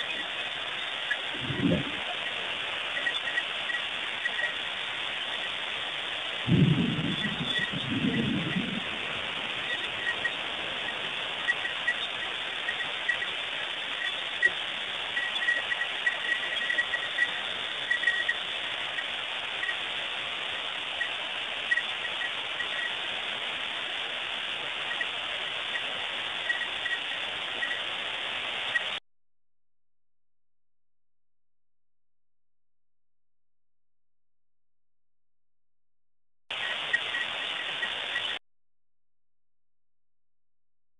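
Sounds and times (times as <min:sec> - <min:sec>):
heavy rain falling: 0:00.0 - 0:29.0.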